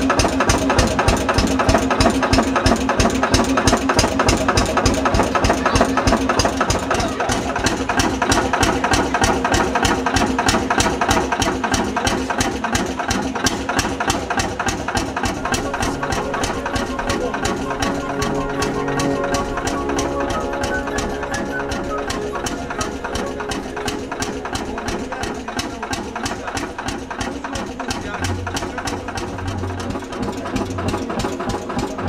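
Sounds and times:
tractor engine idling: 0.0s - 32.0s.

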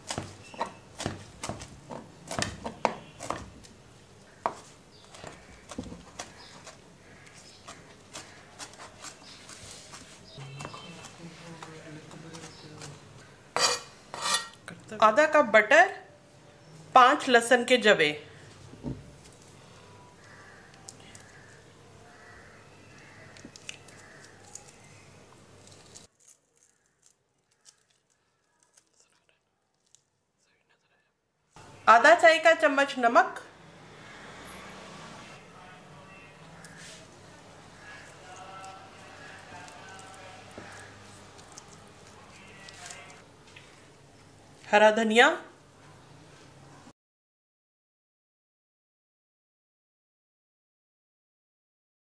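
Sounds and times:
knife chopping on plastic board: 0.0s - 3.6s
low background noise: 0.0s - 46.9s.

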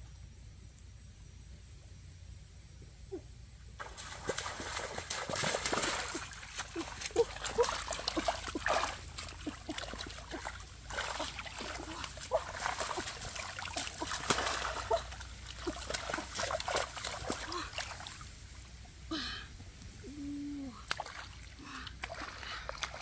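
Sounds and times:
hands splashing in water: 3.8s - 18.2s, 20.8s - 23.0s
small water plops: 3.8s - 18.6s, 20.7s - 23.0s.

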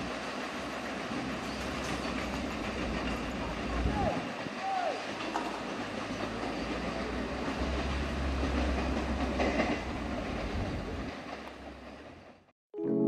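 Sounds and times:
train wheels rolling on rails: 0.0s - 12.5s.

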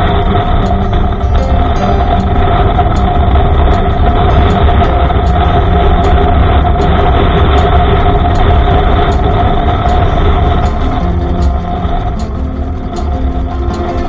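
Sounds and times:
motorcycle engine cruising: 0.0s - 14.0s
road noise: 0.0s - 14.0s
wind rush: 0.0s - 14.0s.

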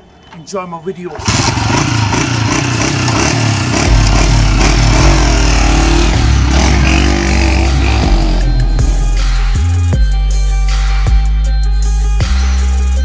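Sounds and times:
motorcycle engine revving: 1.2s - 10.0s.

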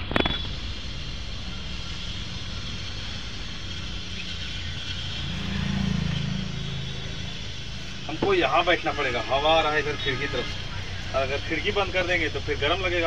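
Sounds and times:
road traffic hum: 0.0s - 13.0s
vehicle passing by: 4.0s - 13.0s.

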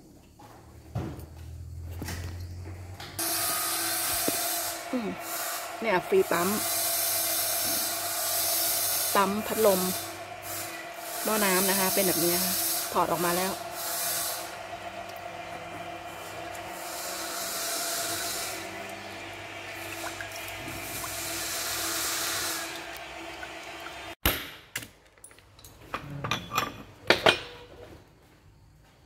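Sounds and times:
machine hum: 2.4s - 24.2s
hiss: 3.2s - 14.6s, 16.8s - 19.1s, 19.8s - 22.8s.

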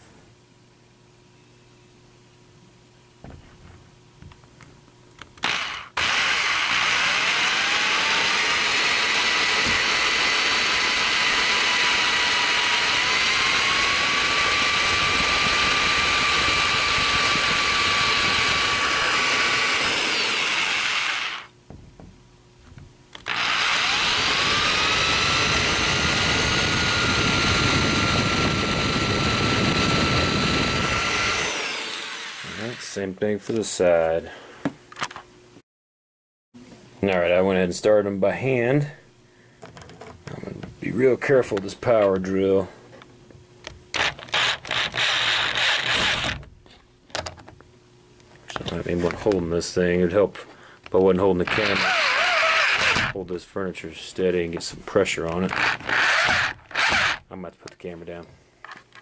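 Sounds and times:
power drill boring into wood: 5.4s - 21.5s, 23.2s - 32.9s, 44.0s - 46.4s, 51.4s - 53.2s, 55.5s - 57.2s.

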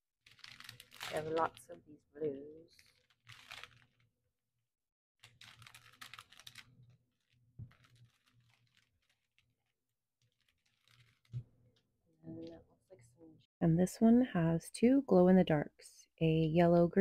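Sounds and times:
plastic bags crinkling: 0.2s - 4.1s, 5.2s - 11.4s.

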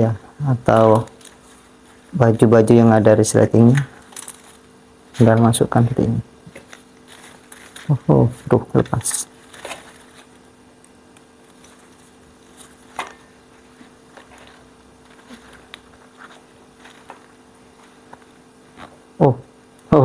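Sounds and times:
steady low hum: 0.0s - 20.0s
fabric cover rustling: 6.4s - 8.6s, 9.3s - 19.2s.

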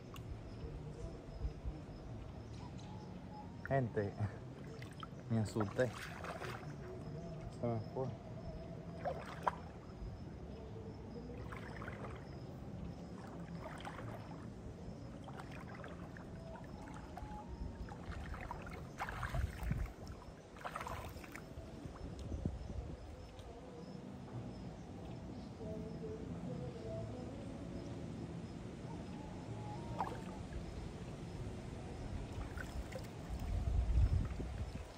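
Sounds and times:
legs wading through shallow water: 0.0s - 34.9s.

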